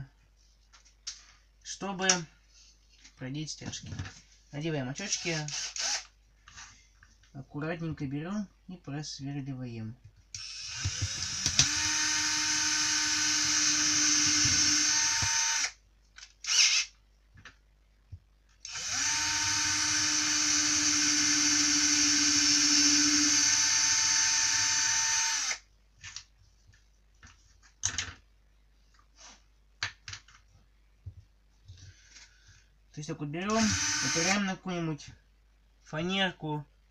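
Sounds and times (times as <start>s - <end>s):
electric drill whining: 5.2s - 6.1s, 10.4s - 15.8s, 16.4s - 16.9s, 18.6s - 25.6s, 33.5s - 34.4s.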